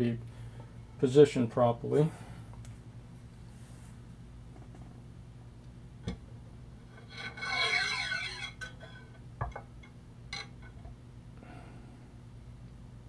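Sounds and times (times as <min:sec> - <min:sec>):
metal scraping with ringing tones: 0:06.8 - 0:09.2.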